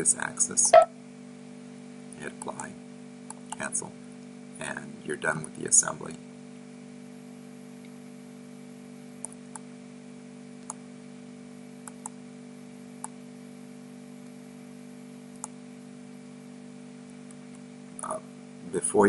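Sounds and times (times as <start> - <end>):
low electrical hum: 0.0 - 19.0
computer mouse clicking: 11.8 - 12.2.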